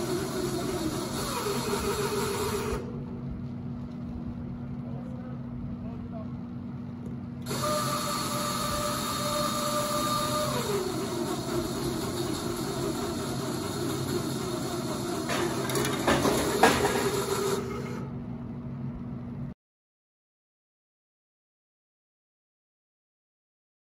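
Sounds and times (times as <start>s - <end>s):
motor whine: 0.0s - 5.5s, 6.6s - 18.6s
low electrical hum: 0.0s - 14.8s, 15.5s - 19.6s.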